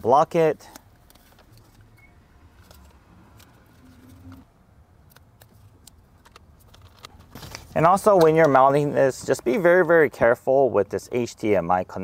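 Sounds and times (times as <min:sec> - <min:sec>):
small parts clicking and tapping: 0:05.0 - 0:08.6.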